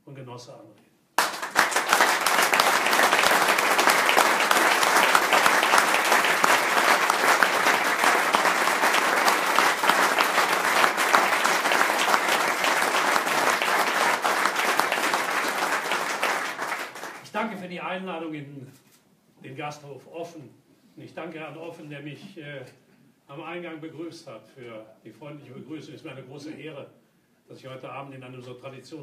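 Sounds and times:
audience applauding: 1.2s - 17.3s.

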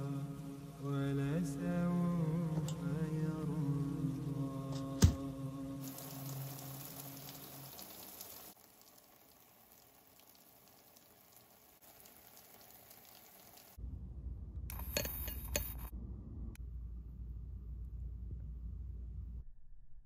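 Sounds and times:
shower water spraying: 5.8s - 13.8s
low rumble: 13.8s - 15.0s, 15.8s - 20.0s.

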